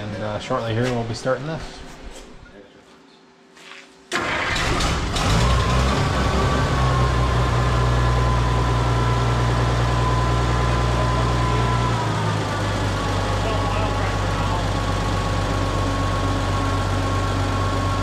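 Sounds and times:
tractor engine starting and idling: 0:04.1 - 0:18.0.

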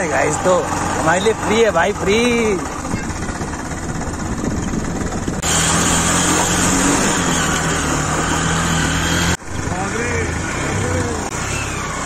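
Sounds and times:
motorcycle engine running: 0:00.0 - 0:12.0
wind noise on microphone: 0:02.8 - 0:05.6.

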